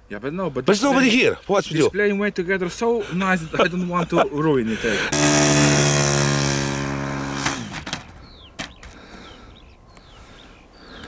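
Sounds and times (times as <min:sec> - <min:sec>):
model plane engine running: 0:05.1 - 0:08.1
bird chirping: 0:07.9 - 0:11.0.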